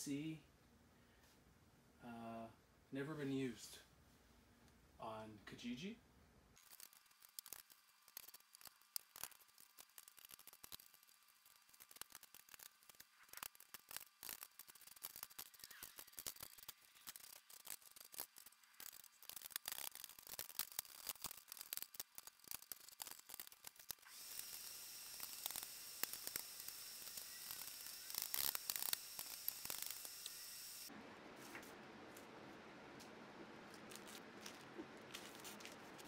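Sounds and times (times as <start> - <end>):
steady hiss: 20.7 - 33.2.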